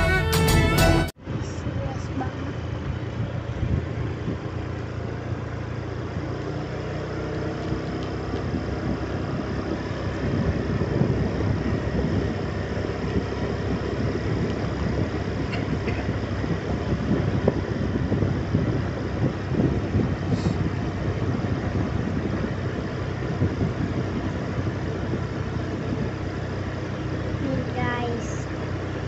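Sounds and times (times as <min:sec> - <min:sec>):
vehicle engine running: 0:00.0 - 0:29.0
wind and tyre noise: 0:01.2 - 0:29.0.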